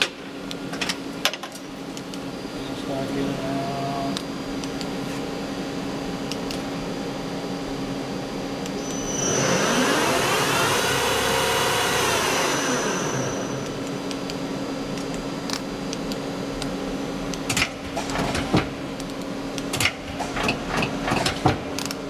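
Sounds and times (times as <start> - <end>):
lathe spindle whine: 8.8 - 14.1.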